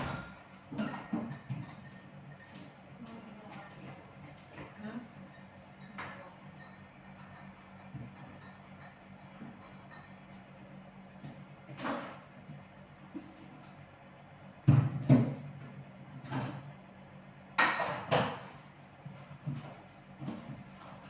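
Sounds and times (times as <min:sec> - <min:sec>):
low steady hum: 0:00.0 - 0:21.0
items knocking on a counter: 0:14.7 - 0:15.4.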